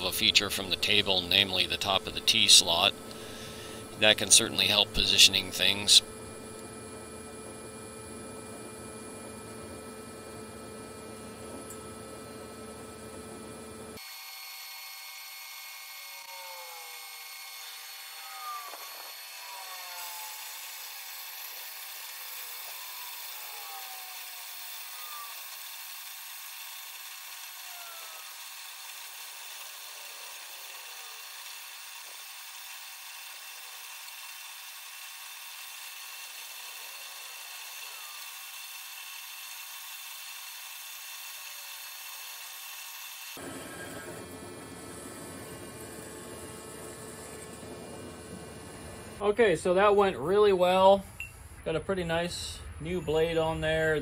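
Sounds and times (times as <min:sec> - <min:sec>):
bandsaw blade whine and hiss: 0:00.0 - 0:06.7, 0:13.9 - 0:49.3.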